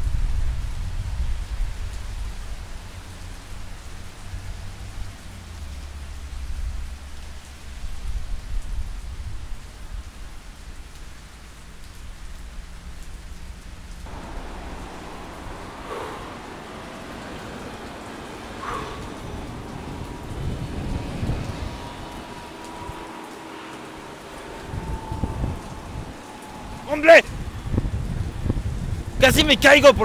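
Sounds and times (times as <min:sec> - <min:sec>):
rain hiss: 0:00.0 - 0:30.0
low rumble: 0:14.1 - 0:29.2.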